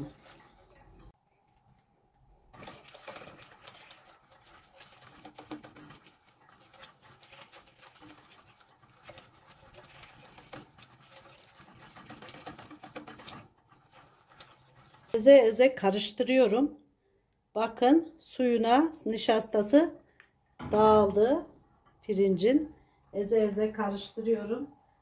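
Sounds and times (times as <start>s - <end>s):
whisk scraping pot: 0.0s - 1.2s, 2.6s - 15.2s.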